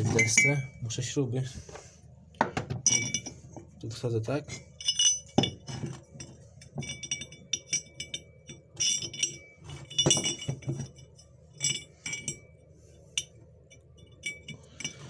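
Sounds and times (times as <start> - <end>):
steel bolt clinking against steel: 2.8 - 3.4, 4.7 - 12.5.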